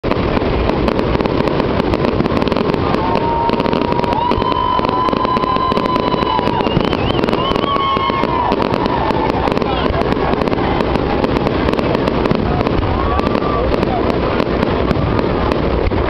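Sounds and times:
fireworks crackling and popping: 0.0s - 16.0s
high steady whistling: 3.1s - 9.8s.

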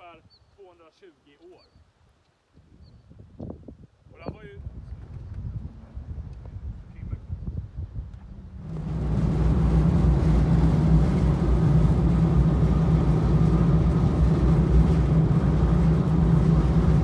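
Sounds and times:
boat engine running: 8.2s - 17.0s
water wash of wake: 8.4s - 17.0s.

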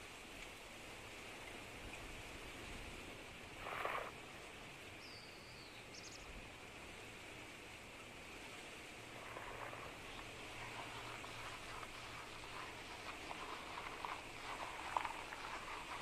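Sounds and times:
steady wind hiss: 0.0s - 16.0s
short rustle: 9.2s - 16.0s.

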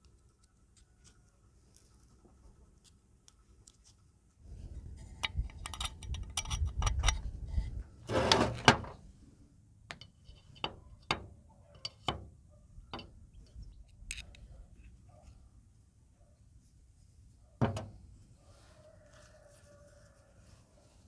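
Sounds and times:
metal parts rustling and scraping: 5.0s - 9.0s.

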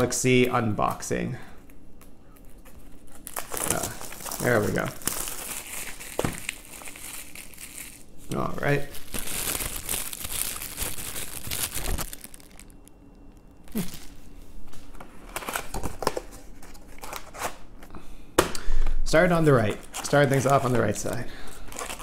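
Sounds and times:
plastic wrapping crinkling: 1.6s - 14.3s, 19.5s - 22.0s.

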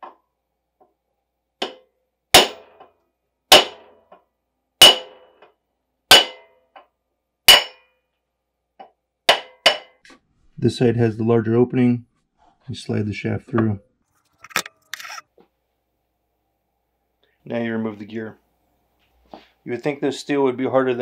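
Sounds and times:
hammer striking metal drift: 2.4s - 2.8s, 3.5s - 4.0s, 4.8s - 5.4s, 6.1s - 6.6s, 7.5s - 7.9s.

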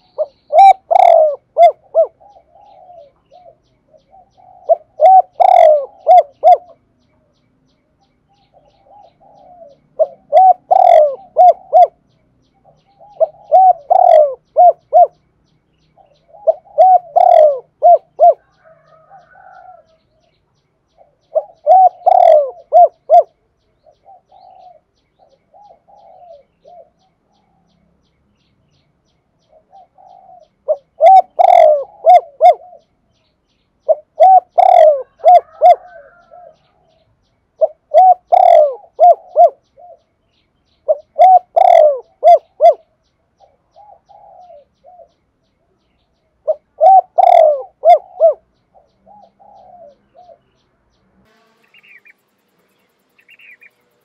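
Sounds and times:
dove cooing: 0.0s - 6.8s, 8.3s - 15.2s, 16.0s - 20.1s, 21.0s - 27.7s, 29.4s - 33.1s, 33.8s - 37.0s, 37.6s - 40.1s, 40.8s - 45.2s, 46.4s - 50.6s.

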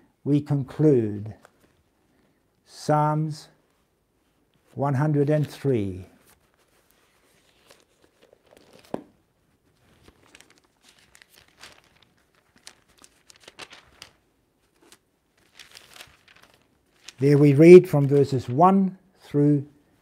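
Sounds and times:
paper pages rustling: 3.7s - 18.6s.

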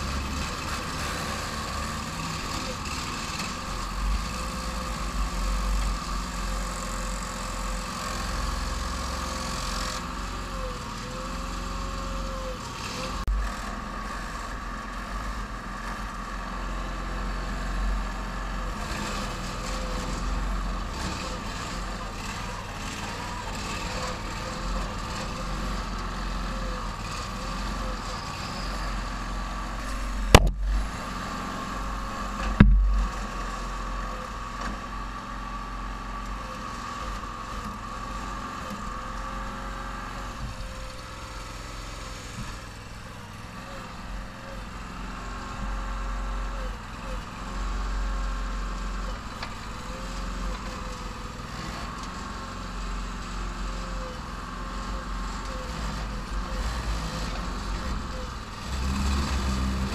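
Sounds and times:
excavator engine running: 0.0s - 59.9s.

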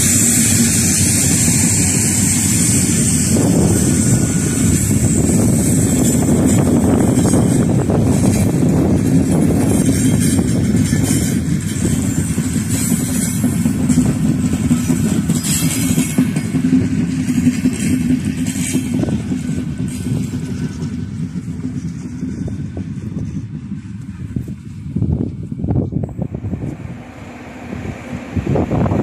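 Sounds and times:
high-pitched rattles: 0.0s - 20.8s
train wheels rumbling on rails: 0.0s - 29.0s.

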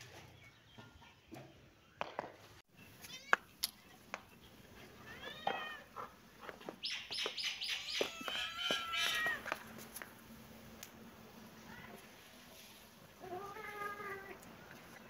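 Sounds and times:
kittens meowing: 7.7s - 9.5s.

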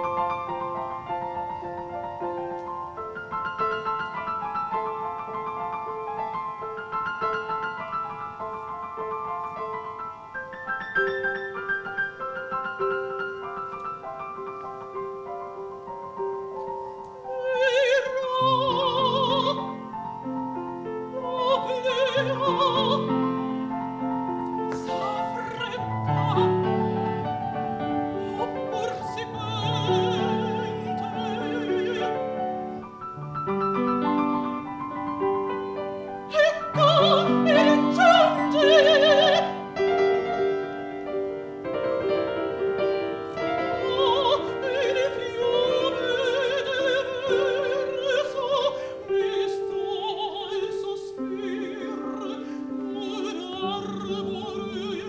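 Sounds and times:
grand piano: 0.0s - 55.0s
woman singing opera with vibrato: 17.1s - 33.2s, 33.8s - 41.3s, 42.0s - 55.0s.

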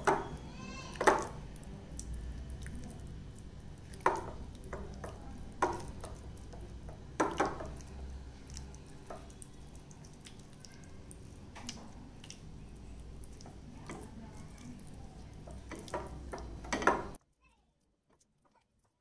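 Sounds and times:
hands squishing marinade: 0.0s - 17.2s
wet clicks against glass: 11.5s - 12.6s.

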